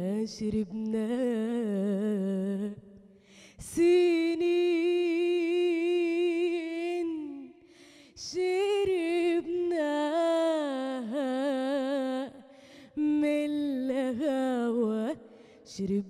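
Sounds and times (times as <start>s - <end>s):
woman singing unaccompanied: 0.0s - 2.9s, 3.6s - 16.0s
woman breathing: 3.1s - 3.6s, 7.6s - 8.2s, 12.4s - 13.0s, 15.3s - 15.7s.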